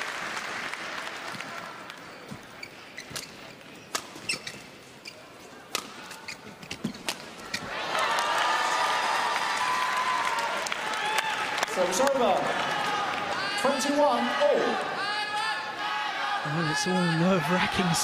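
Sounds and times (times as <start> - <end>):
applause: 0.0 - 2.1, 7.8 - 13.4
shoe squeaks on court floor: 2.1 - 7.7.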